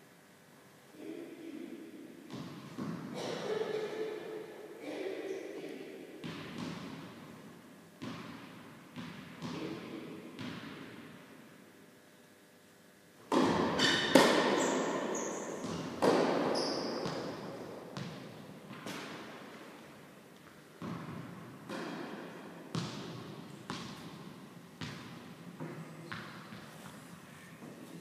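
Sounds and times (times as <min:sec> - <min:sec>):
tennis ball bouncing on court: 0:08.0 - 0:11.1, 0:13.3 - 0:19.4, 0:20.4 - 0:26.7
racket hitting tennis ball: 0:13.3 - 0:19.6, 0:20.8 - 0:26.7.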